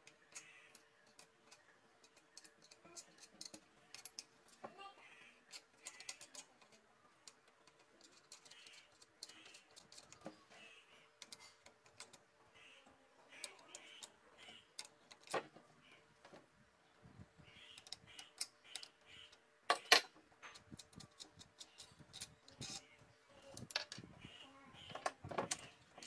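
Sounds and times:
metallic clicks and taps: 0:00.0 - 0:04.6.

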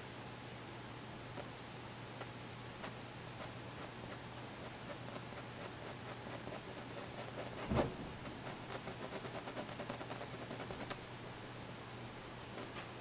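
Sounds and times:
steady low hum: 0:00.0 - 0:13.0
paintbrush scratching on canvas: 0:02.8 - 0:11.0
dull thump: 0:07.6 - 0:08.3.

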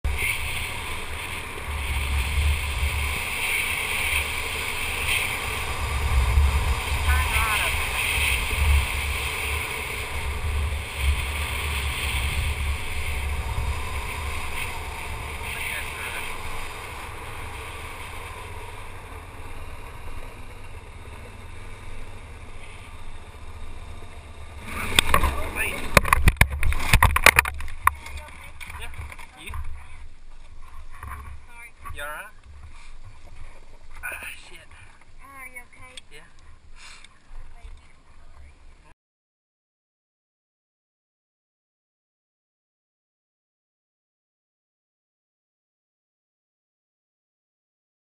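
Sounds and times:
wind rushing across microphone: 0:00.0 - 0:22.2, 0:23.1 - 0:34.0
atv engine running: 0:00.0 - 0:38.9.

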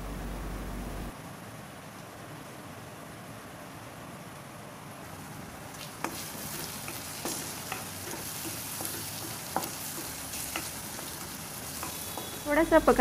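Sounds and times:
food sizzling in hot oil: 0:05.6 - 0:13.0
spatula scraping a pan: 0:05.8 - 0:12.7.

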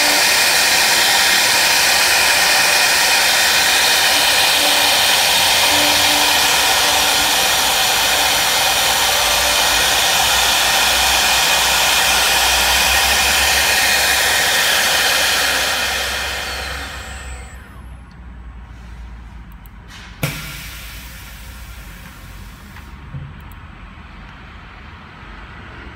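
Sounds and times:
wood router high whine: 0:00.0 - 0:18.0.

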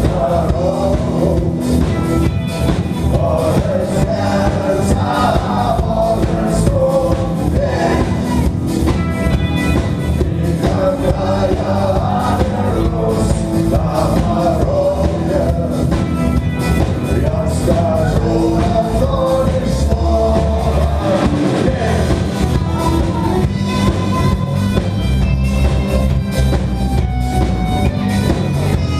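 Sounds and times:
person singing: 0:00.0 - 0:02.2, 0:03.0 - 0:08.9, 0:09.8 - 0:16.2, 0:17.0 - 0:24.6
rock band playing: 0:00.0 - 0:28.9.

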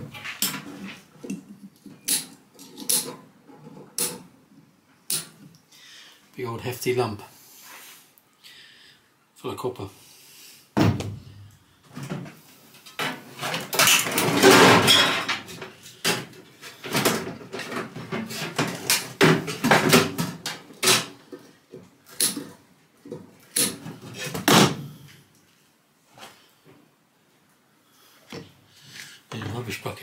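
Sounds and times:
metal clattering and scraping: 0:11.9 - 0:21.4
sheet metal clanking and rattling: 0:13.0 - 0:21.2.

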